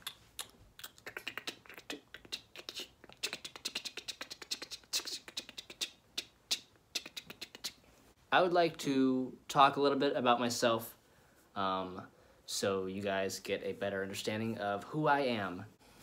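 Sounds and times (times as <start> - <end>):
beatboxing mouth sounds: 0.0 - 7.9.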